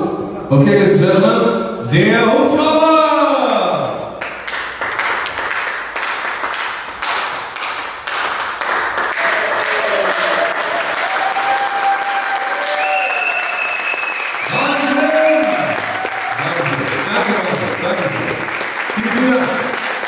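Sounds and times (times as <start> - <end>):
audience applauding: 4.2 - 20.0.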